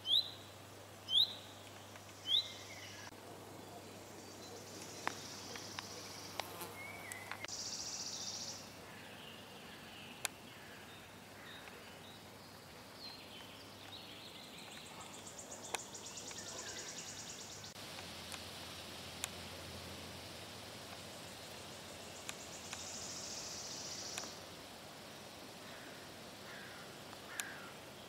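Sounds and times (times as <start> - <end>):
small birds chirping: 0.0 - 28.0
sharp clicks: 22.2 - 22.9, 24.1 - 24.4.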